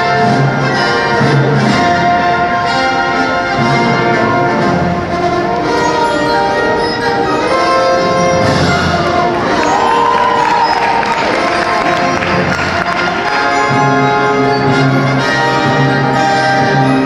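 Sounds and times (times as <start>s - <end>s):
orchestral music with brass and strings: 0.0s - 17.0s.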